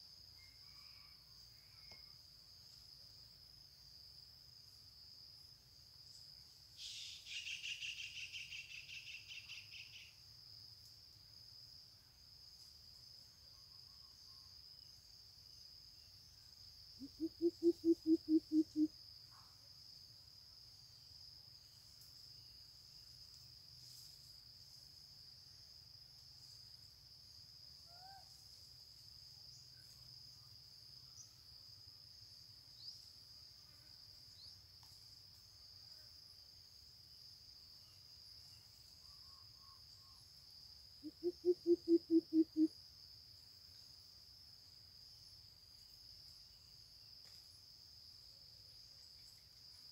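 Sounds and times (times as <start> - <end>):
bird giving deep hoots: 17.0 - 18.9, 41.0 - 42.7.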